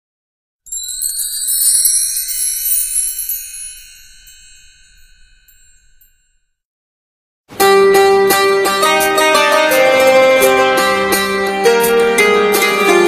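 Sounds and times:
shimmering high chimes: 0:00.7 - 0:06.5.

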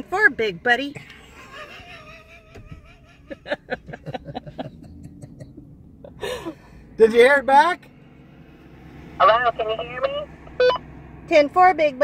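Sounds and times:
soft laughter: 0:01.2 - 0:06.5.

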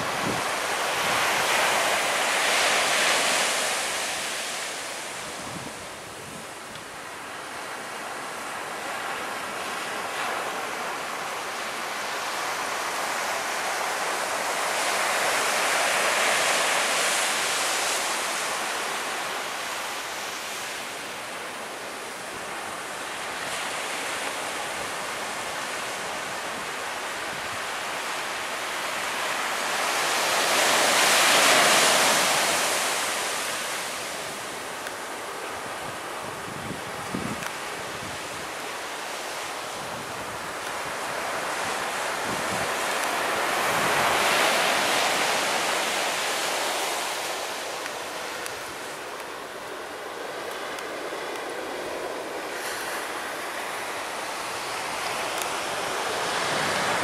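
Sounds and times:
wind on microphone: 0:00.0 - 0:02.2, 0:05.2 - 0:06.8, 0:35.6 - 0:38.8, 0:39.6 - 0:46.8, 0:50.0 - 0:57.0
surf breaking on a beach: 0:00.0 - 0:57.0.

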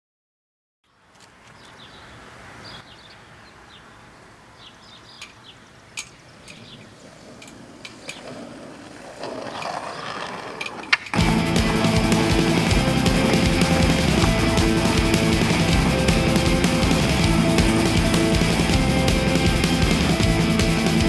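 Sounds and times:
bird chirps: 0:00.8 - 0:08.2.

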